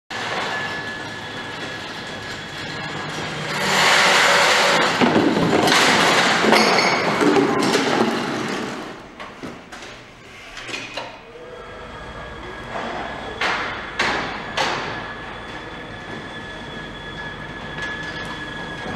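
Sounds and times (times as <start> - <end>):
carts rattling and banging: 0.1 - 18.9
plastic crates clattering on floor: 4.6 - 10.1.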